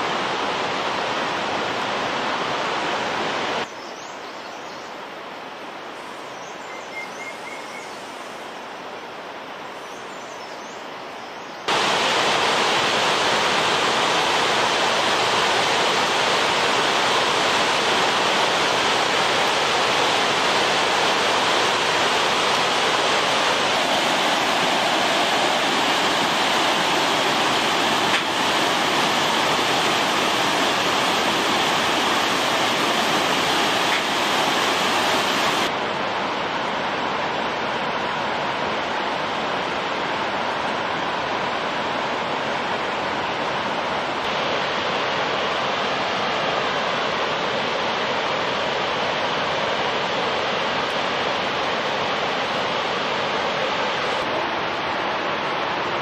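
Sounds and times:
river rushing over boulders: 0.0 - 3.7, 11.7 - 56.0
faint bird chirps: 6.0 - 8.4.

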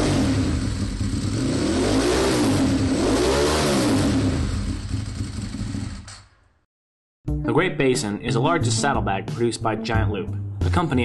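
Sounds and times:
vehicle engine revving: 0.0 - 6.2.

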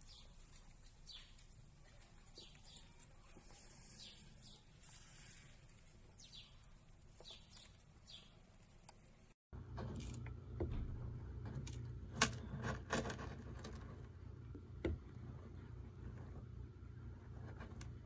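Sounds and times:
steady low hum: 9.6 - 18.0.

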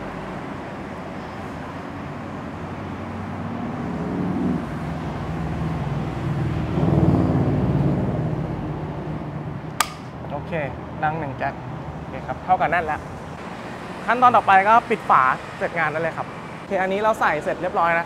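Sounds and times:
vehicle engine droning: 0.0 - 11.5.

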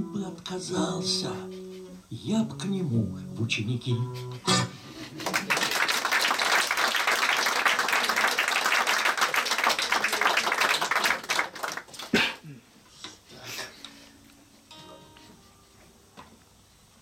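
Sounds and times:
audience applauding: 5.1 - 12.4.

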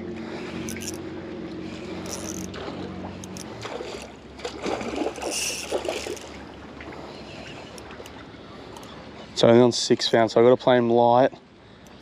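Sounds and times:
steady low hum: 0.0 - 12.0
fish splashing in water: 1.7 - 8.8.

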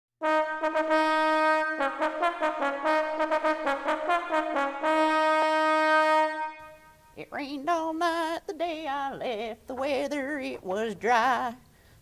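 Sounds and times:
brass fanfare: 0.2 - 7.2.

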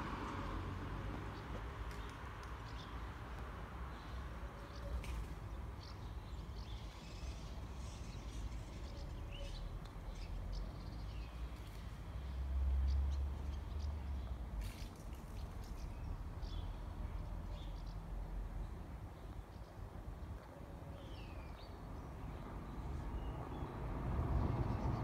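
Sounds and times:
small birds chirping: 1.2 - 20.4.

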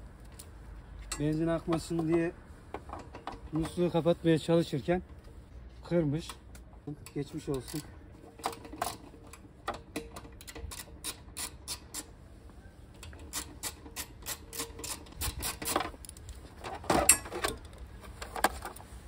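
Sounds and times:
rattling clatter: 13.0 - 18.8.

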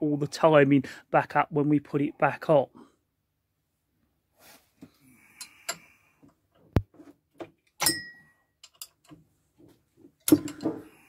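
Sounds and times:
metallic clicks and clanks: 7.7 - 9.2, 10.2 - 10.9
ringing metal knock: 7.8 - 8.2.

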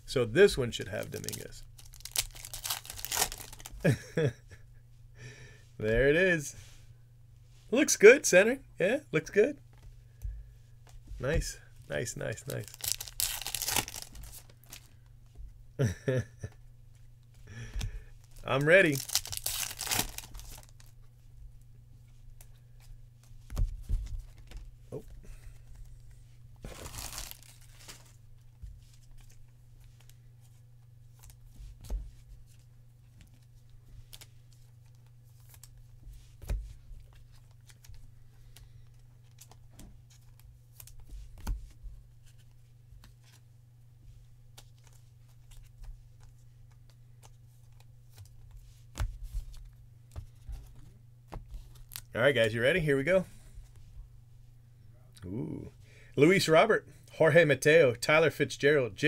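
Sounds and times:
steady low hum: 0.0 - 59.0
foil wrapper crinkling: 0.9 - 3.8, 12.4 - 15.0, 18.2 - 21.0, 26.6 - 28.2.

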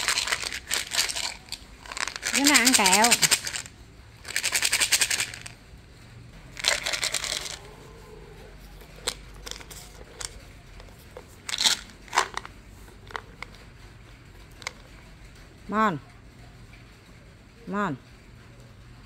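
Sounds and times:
pills rattling in plastic bottle: 0.0 - 5.6, 6.6 - 7.7, 8.8 - 13.8, 14.5 - 15.0.

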